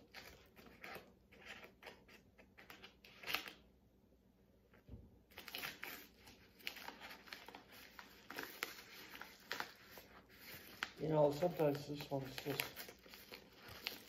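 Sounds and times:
padded paper mailer crinkling: 0:05.4 - 0:14.0
scissors cutting paper: 0:05.4 - 0:14.0.

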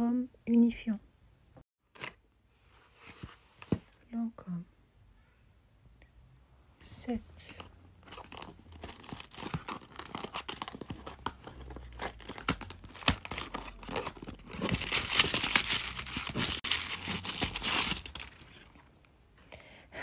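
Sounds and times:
cardboard packaging tearing: 0:08.1 - 0:18.8.

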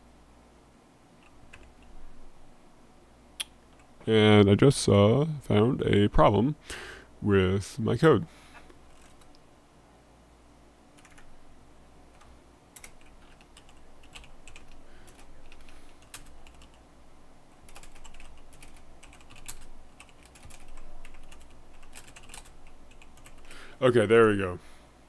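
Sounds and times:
typing on computer keyboard: 0:01.2 - 0:01.9, 0:08.9 - 0:09.3, 0:11.0 - 0:11.3, 0:12.2 - 0:16.8, 0:17.7 - 0:23.5.

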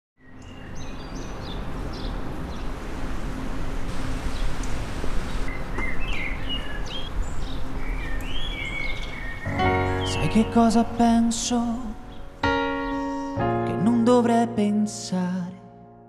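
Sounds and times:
birds chirping: 0:00.2 - 0:03.4, 0:04.0 - 0:13.4
outdoor background hiss: 0:00.2 - 0:15.6.

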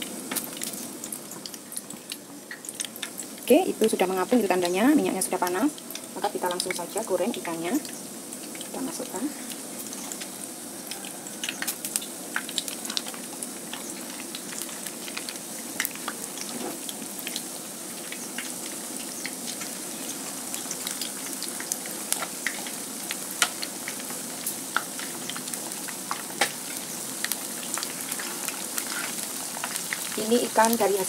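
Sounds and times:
fish deep-frying in oil: 0:00.0 - 0:31.0
oil spitting crackles and pops: 0:00.2 - 0:03.5, 0:09.6 - 0:30.8.

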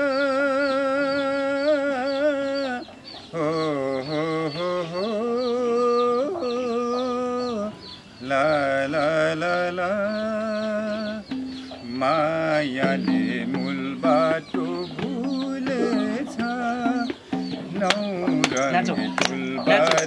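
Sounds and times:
bowed string melody: 0:11.3 - 0:20.0.

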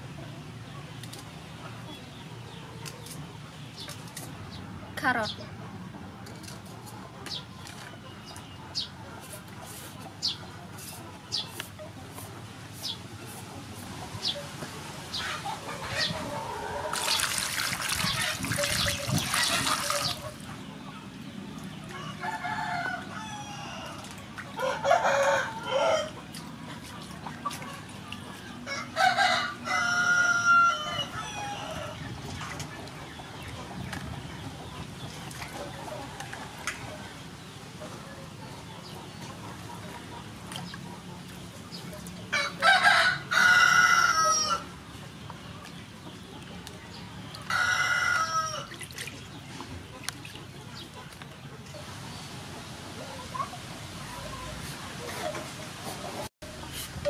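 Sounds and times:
water splashing in steel bowl: 0:16.9 - 0:20.4
rooster crowing: 0:22.0 - 0:24.0, 0:24.6 - 0:26.2, 0:28.7 - 0:32.0, 0:42.4 - 0:44.7, 0:47.5 - 0:48.7.

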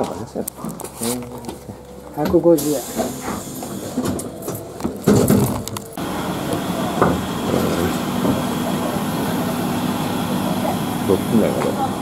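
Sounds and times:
bus idling: 0:00.0 - 0:12.0.

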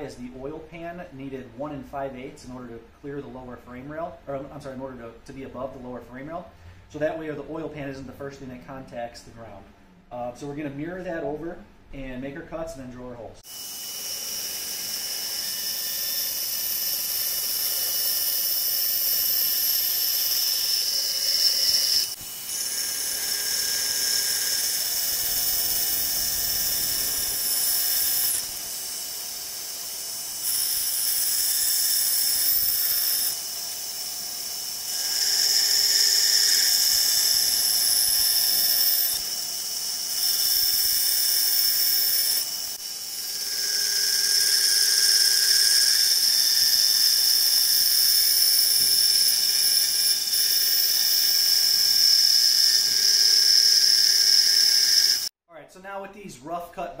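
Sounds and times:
band saw cutting metal: 0:13.4 - 0:55.3.

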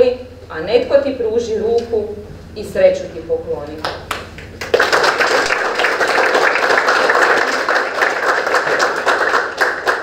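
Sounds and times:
audience applauding: 0:04.1 - 0:10.0.

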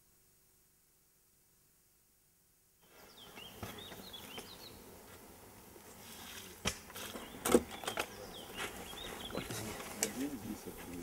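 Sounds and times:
birds chirping: 0:02.8 - 0:05.1, 0:06.9 - 0:11.0
insects humming: 0:02.8 - 0:11.0.

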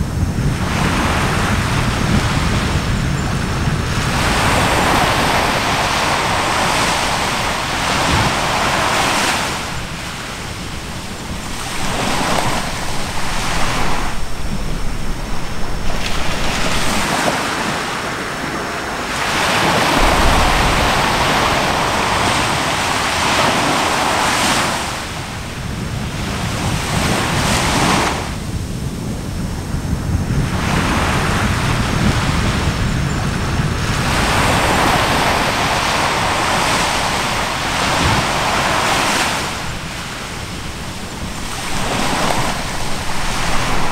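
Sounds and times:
surf washing ashore: 0:00.0 - 0:43.9
wind buffeting microphone: 0:00.0 - 0:43.9
brief low rumble: 0:20.0 - 0:23.0.

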